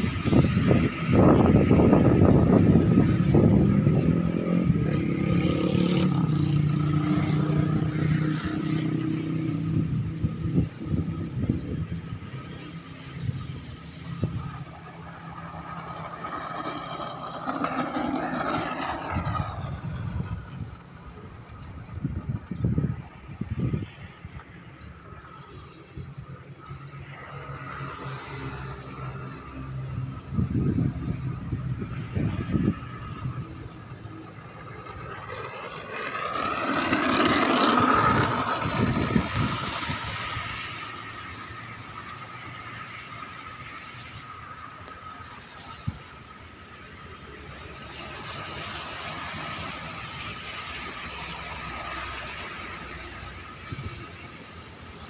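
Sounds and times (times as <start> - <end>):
low rumbling gusts: 0.0 - 25.3, 29.8 - 41.7.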